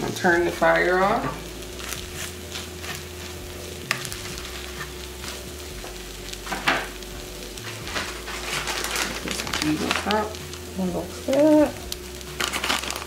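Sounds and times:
omelette sizzling in a skillet: 0.0s - 13.0s
spatula scraping and tapping a pan: 1.2s - 7.0s.

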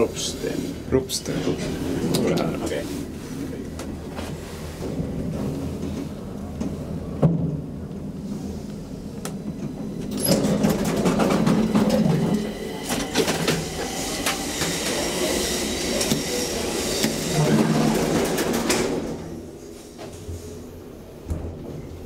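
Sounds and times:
elevator low hum: 0.0s - 22.0s
elevator car rattling: 9.0s - 19.5s.

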